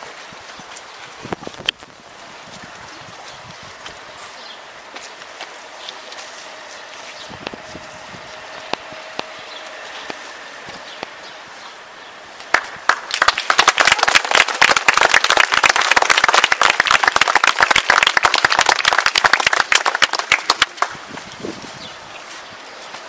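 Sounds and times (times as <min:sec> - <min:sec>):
crowd applauding: 0:12.5 - 0:21.1.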